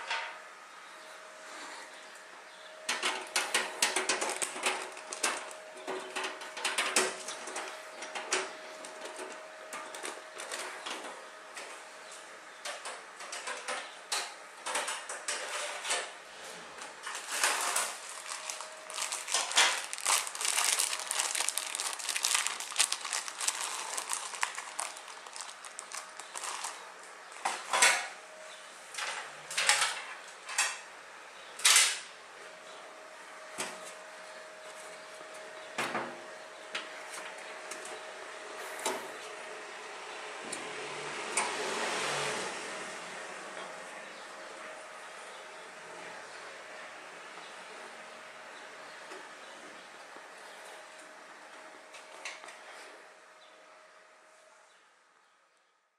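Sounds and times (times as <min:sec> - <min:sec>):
plastic zip bag crinkling: 0:04.2 - 0:05.6, 0:17.2 - 0:26.9.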